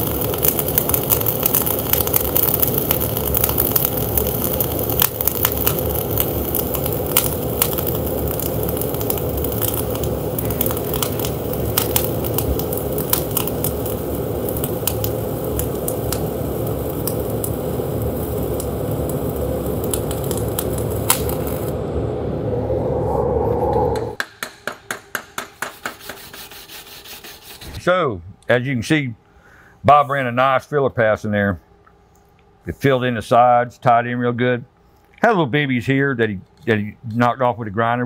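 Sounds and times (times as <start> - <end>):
sharp spatter pops: 0.0 - 21.7
welding arc crackling: 0.0 - 22.5.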